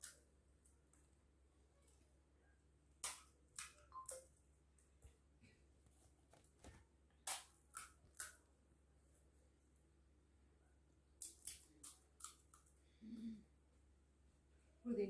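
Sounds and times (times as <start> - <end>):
crisp shells cracking: 11.2 - 12.7.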